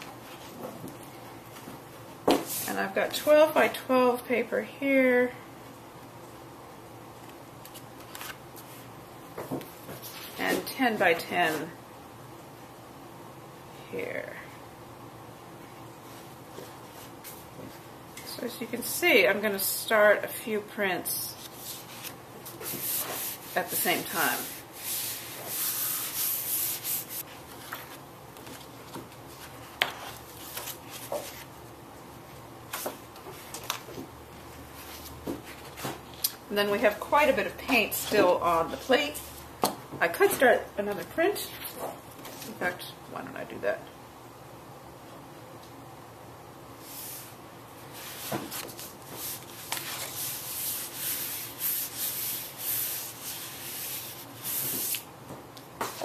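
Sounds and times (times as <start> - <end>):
paper rustling: 7.6 - 8.8, 24.4 - 31.5, 47.9 - 55.0
hands rubbing paper on a plate: 21.3 - 27.3, 48.0 - 55.1.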